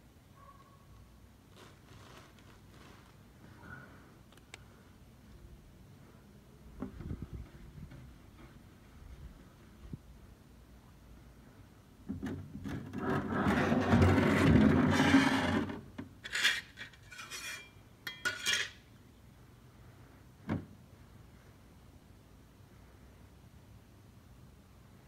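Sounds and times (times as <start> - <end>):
close rubbing and scraping: 12.9 - 17.8.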